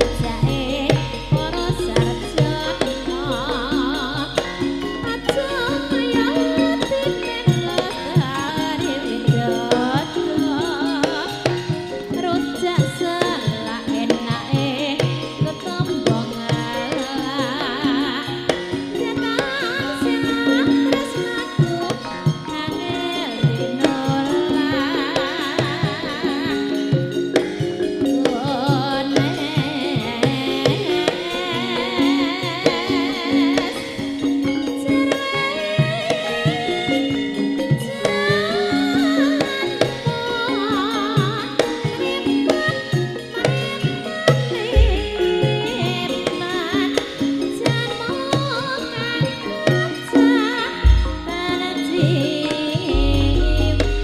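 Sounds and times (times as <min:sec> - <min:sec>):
hand-drum beats: 0:00.0 - 0:54.0
vibrato singing: 0:00.0 - 0:54.0
band playing: 0:50.6 - 0:51.9, 0:52.9 - 0:54.0.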